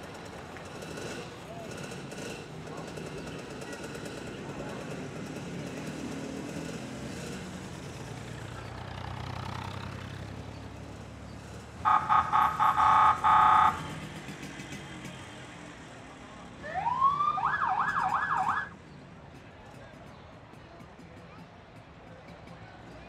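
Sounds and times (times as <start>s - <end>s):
street hum: 0.0s - 23.0s
electronic car alarm: 11.9s - 13.9s.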